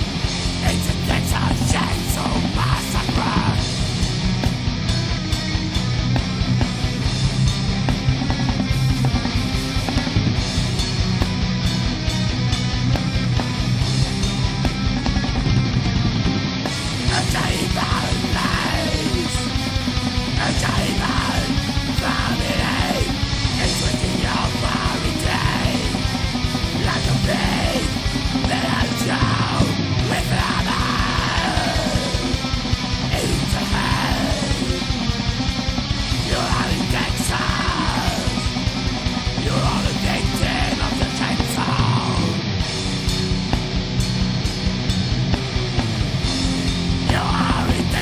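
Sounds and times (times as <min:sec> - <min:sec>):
bass guitar: 0:00.0 - 0:48.0
distorted electric guitars: 0:00.0 - 0:48.0
heavy metal band playing: 0:00.0 - 0:48.0
person yelling vocals: 0:00.6 - 0:03.6, 0:17.1 - 0:19.5, 0:20.4 - 0:32.4, 0:33.1 - 0:34.9, 0:36.2 - 0:38.6, 0:39.4 - 0:42.4, 0:47.1 - 0:48.0.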